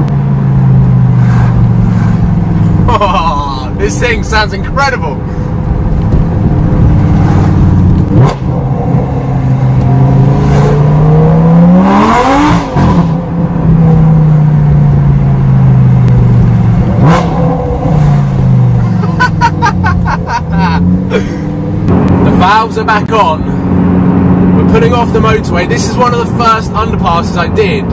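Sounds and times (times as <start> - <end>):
car engine accelerating: 0.0 - 27.9.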